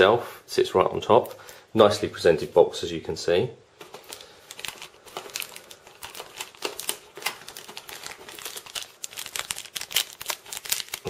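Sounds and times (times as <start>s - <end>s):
plastic packaging crinkling: 3.8s - 11.0s.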